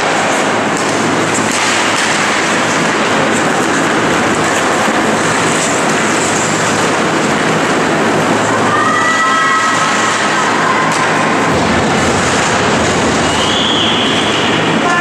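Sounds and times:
hockey sticks and puck knocking: 0.0s - 7.9s, 9.2s - 15.0s
skates scraping ice: 0.0s - 15.0s
low hum: 9.6s - 15.0s.

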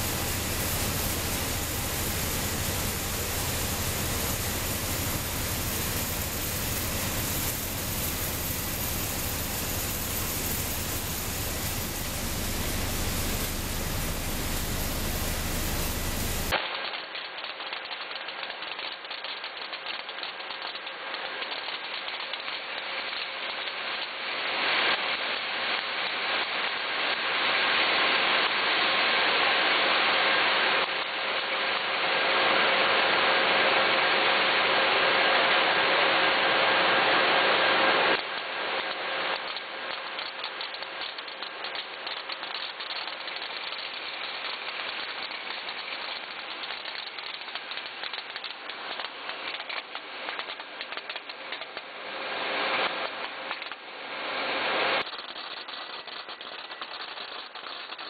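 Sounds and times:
machinery hissing and humming: 0.0s - 16.6s
rattle of rapid clicks: 0.0s - 24.2s, 38.2s - 51.9s, 52.7s - 53.8s, 55.0s - 58.0s.

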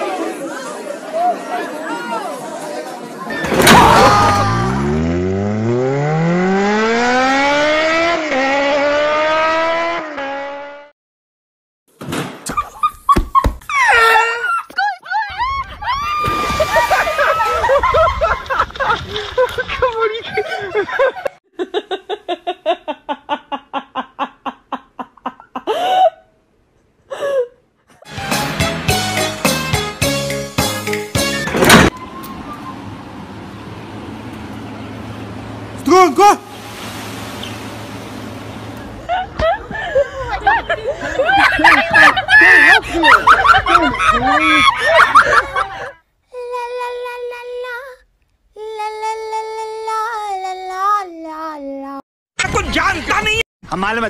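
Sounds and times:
excited voices shouting and laughing: 0.0s - 4.8s, 13.7s - 18.7s, 39.1s - 46.0s
person laughing hard: 12.8s - 19.7s, 20.3s - 26.2s, 39.0s - 46.0s.

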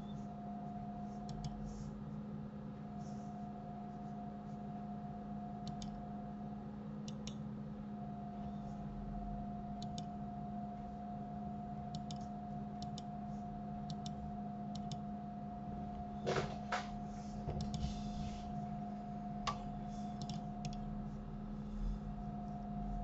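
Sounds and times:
electrical hum: 0.0s - 23.0s
mouse and keyboard clicks: 20.2s - 20.8s.

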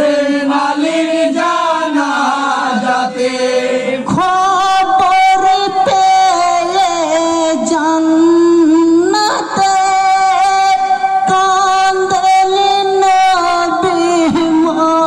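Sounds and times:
men chanting a lament: 0.0s - 7.4s.

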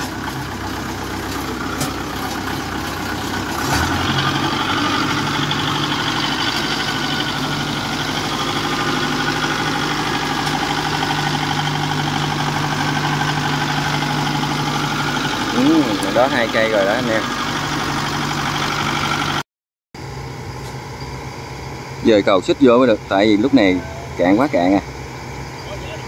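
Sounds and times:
crawler machine engine under load: 0.0s - 19.4s.

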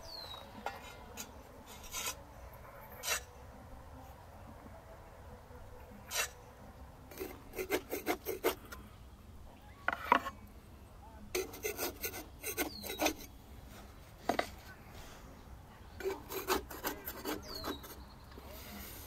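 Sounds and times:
buns scraped off clay wall: 0.1s - 2.2s, 2.8s - 3.3s, 6.0s - 6.4s, 7.1s - 8.8s, 11.3s - 14.7s, 16.0s - 18.1s.

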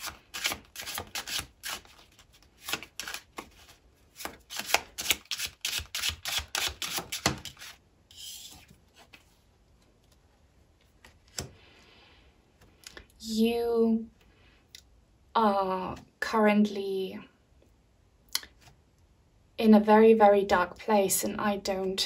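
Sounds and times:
card sliding: 0.0s - 9.3s
cards being shuffled: 0.0s - 11.6s.

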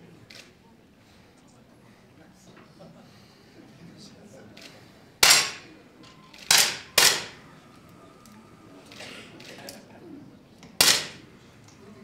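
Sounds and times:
air pistol shots: 5.2s - 5.7s, 6.4s - 7.4s, 10.8s - 11.2s.

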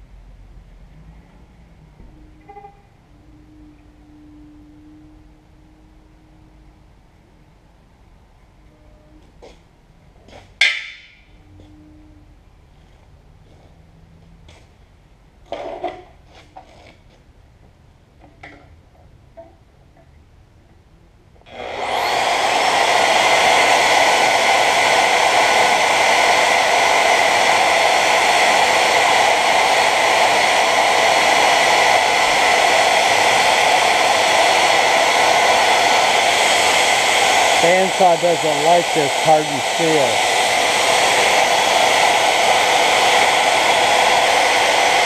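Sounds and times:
bandsaw cutting steel: 21.5s - 24.8s, 36.6s - 40.3s.

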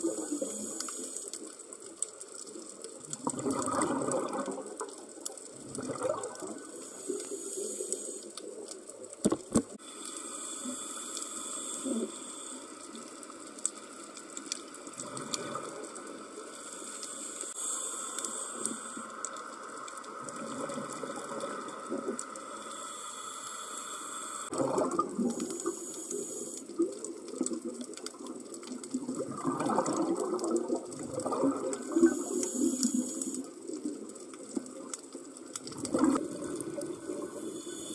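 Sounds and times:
exhaled bubbles underwater: 0.0s - 1.0s, 2.9s - 7.3s, 14.8s - 16.2s, 20.1s - 22.3s, 24.5s - 37.9s.

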